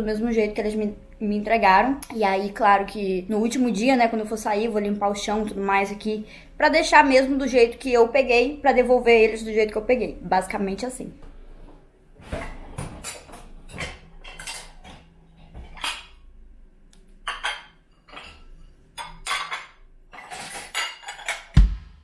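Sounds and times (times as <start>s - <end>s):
ceramic dishes clinking: 17.2s - 21.6s.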